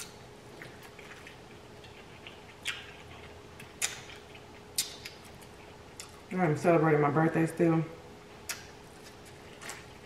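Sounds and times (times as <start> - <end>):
chewing corn on the cob: 0.0 - 6.3
faint steady hum: 0.0 - 10.0.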